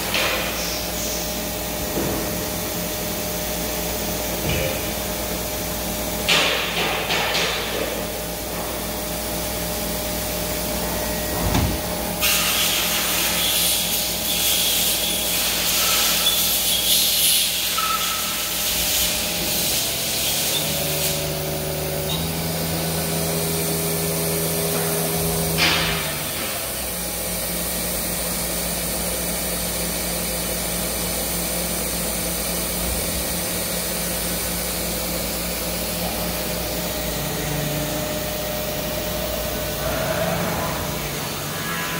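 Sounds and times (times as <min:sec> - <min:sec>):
hiss: 0:12.2 - 0:21.3
machine hum: 0:17.7 - 0:29.0, 0:31.8 - 0:41.9.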